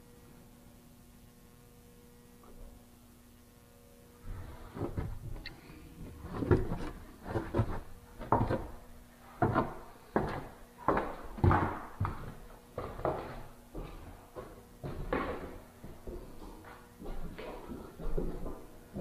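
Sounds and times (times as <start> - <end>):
footsteps on wooden boards: 4.7 - 5.4, 6.1 - 19.0.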